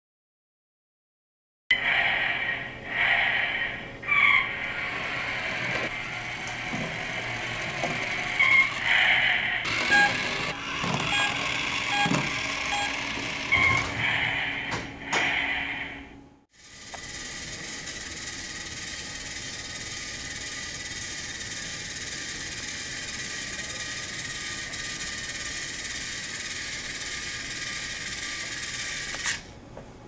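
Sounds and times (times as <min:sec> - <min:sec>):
toy truck motor whirring: 0:04.6 - 0:13.8, 0:16.6 - 0:29.5
toy motor click: 0:09.6 - 0:13.6, 0:16.6 - 0:29.5.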